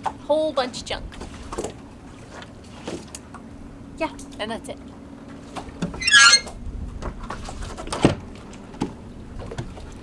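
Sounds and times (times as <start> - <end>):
hatch lid scraping creak: 5.8 - 6.6.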